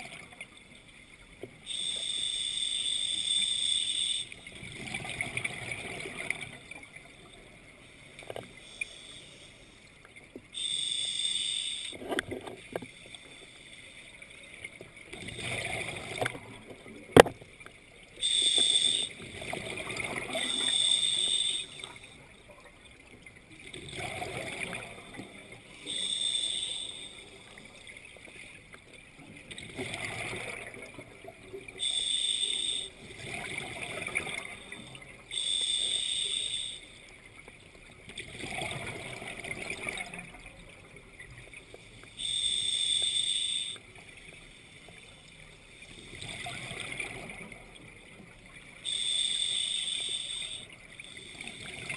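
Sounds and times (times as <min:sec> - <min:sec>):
scuba regulator inhale hiss: 0:01.7 - 0:04.4, 0:08.6 - 0:09.8, 0:10.6 - 0:12.0, 0:18.2 - 0:19.2, 0:20.4 - 0:22.1, 0:25.8 - 0:27.3, 0:31.8 - 0:33.0, 0:35.3 - 0:37.0, 0:42.1 - 0:43.8, 0:48.8 - 0:51.8
exhaled bubbles underwater: 0:04.5 - 0:07.4, 0:14.9 - 0:17.3, 0:18.1 - 0:26.0, 0:29.3 - 0:31.9, 0:32.7 - 0:35.4, 0:38.0 - 0:41.7, 0:46.0 - 0:49.2, 0:50.5 - 0:51.9.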